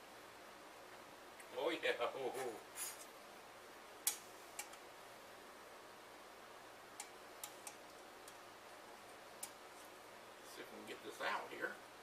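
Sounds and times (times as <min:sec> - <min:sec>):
faint room hiss: 0:00.0 - 0:12.0.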